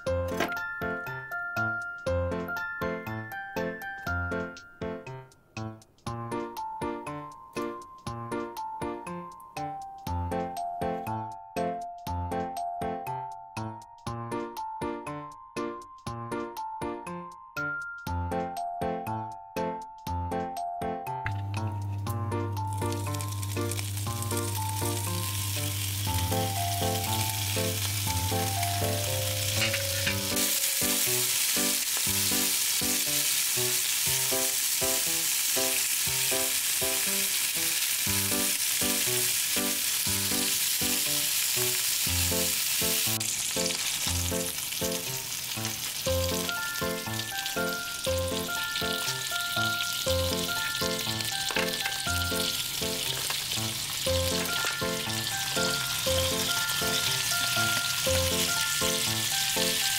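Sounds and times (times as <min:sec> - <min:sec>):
light background music: 0:00.0 - 0:59.9
meat sizzling in a frying pan: 0:22.6 - 0:59.9.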